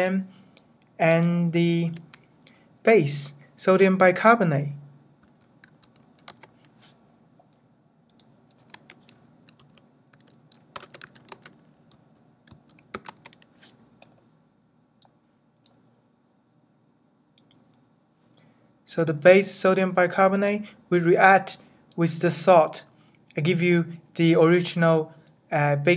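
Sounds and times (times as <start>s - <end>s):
computer keyboard typing: 1.9s - 2.2s, 5.2s - 6.8s, 8.1s - 14.1s.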